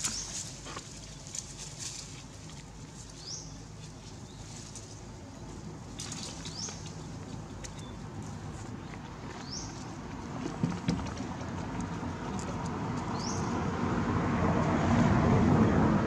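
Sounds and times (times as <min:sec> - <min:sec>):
dry leaves rustling: 0:00.0 - 0:10.2
low background noise: 0:00.0 - 0:15.2.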